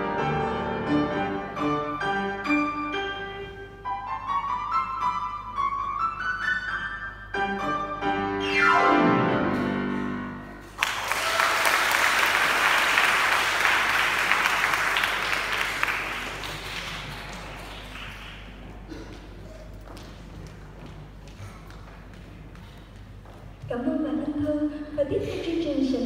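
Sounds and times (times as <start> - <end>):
grand piano playing: 0.0 - 10.8
audience applause: 10.7 - 19.0.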